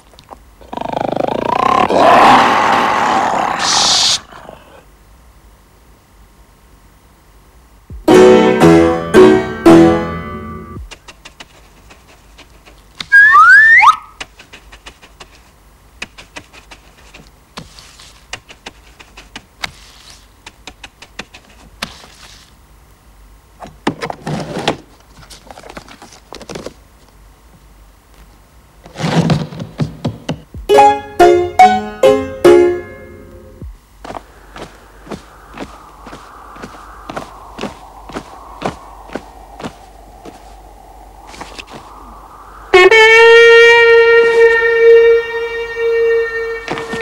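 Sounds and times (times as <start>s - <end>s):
rising whistle-like glide: 13.1s - 14.2s, 34.3s - 47.0s
noisy swish: 33.6s - 45.2s.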